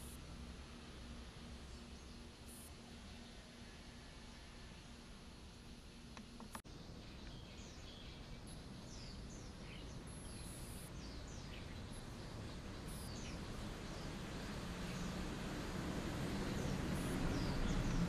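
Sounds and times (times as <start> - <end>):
low outdoor rumble: 0.0 - 18.0
small birds chirping: 4.8 - 18.0.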